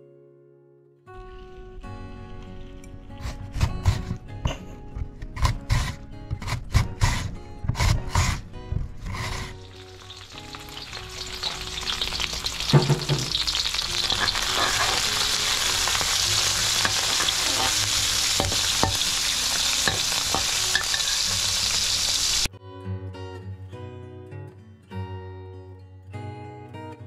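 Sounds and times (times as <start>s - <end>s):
mango grated on shredder: 5.4s - 10.2s
shrimp sizzling in oil: 9.6s - 22.5s.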